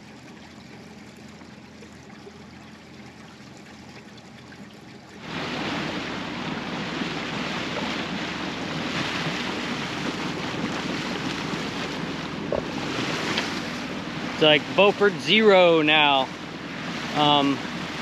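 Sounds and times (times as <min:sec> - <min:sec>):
water running along hull: 0:00.0 - 0:18.0
wind noise on microphone: 0:05.2 - 0:18.0.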